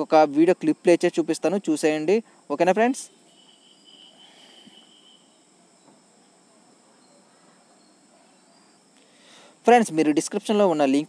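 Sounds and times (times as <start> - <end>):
faint background hiss: 0.0 - 11.0
faint high-pitched steady tones: 0.0 - 11.0.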